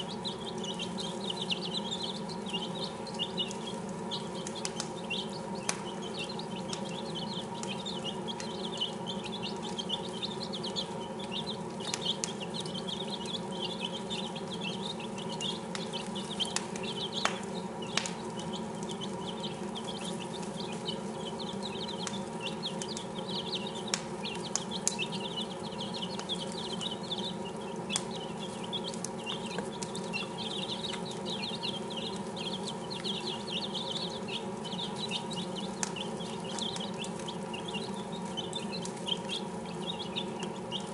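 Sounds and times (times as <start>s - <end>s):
chicks peeping: 0.0s - 40.9s
steady low hum: 0.0s - 40.9s
sharp clicks: 4.4s - 19.1s, 19.7s - 27.3s.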